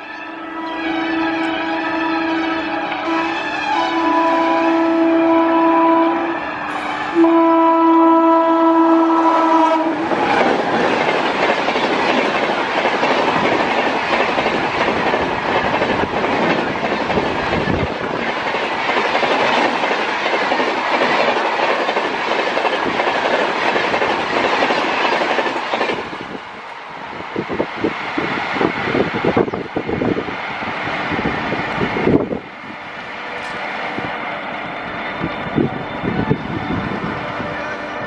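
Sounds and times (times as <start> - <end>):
train horn chord: 0.0 - 10.1
train wheels rushing past: 0.0 - 38.0.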